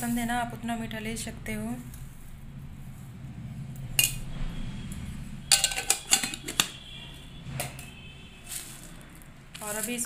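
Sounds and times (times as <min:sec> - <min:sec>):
spoon clinking on metal plate: 0:05.5 - 0:06.8.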